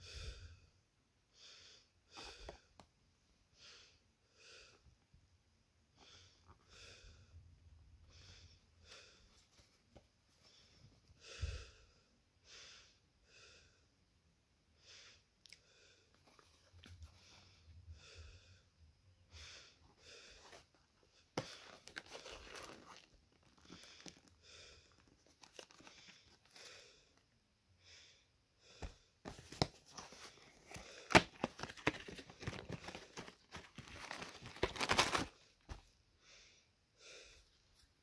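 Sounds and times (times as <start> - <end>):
cardboard and plastic rustling: 21.4 - 24.4, 25.0 - 26.6, 29.3 - 35.9.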